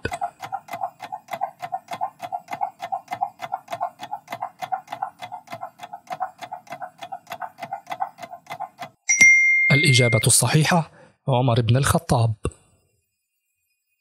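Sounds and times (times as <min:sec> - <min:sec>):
clock ticking with pitched tones: 0:00.0 - 0:09.1, 0:09.7 - 0:10.5.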